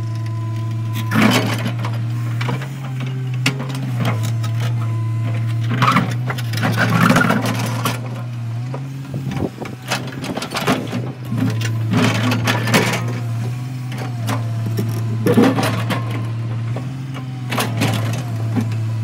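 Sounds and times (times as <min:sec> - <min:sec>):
excavator diesel engine running: 0:00.0 - 0:19.0
rock and dirt scraping: 0:08.8 - 0:16.1.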